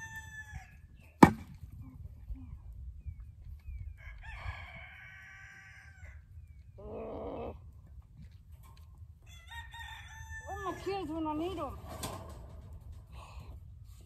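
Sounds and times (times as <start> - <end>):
rooster crowing: 0.0 - 0.7, 4.0 - 6.2, 9.3 - 10.8.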